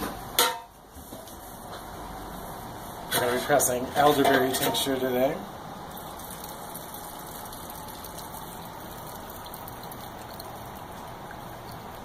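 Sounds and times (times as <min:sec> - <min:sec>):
liquid pouring: 0:05.8 - 0:12.0.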